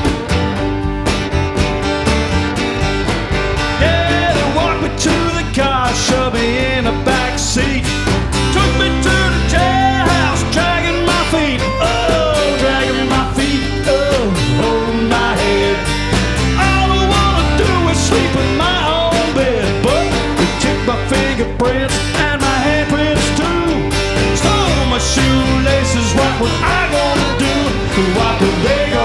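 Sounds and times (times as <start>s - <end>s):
acoustic guitar strumming: 0.0s - 29.0s
bass guitar: 0.0s - 29.0s
drums: 0.0s - 29.0s
second guitar: 0.0s - 29.0s
sliding guitar melody: 0.0s - 29.0s.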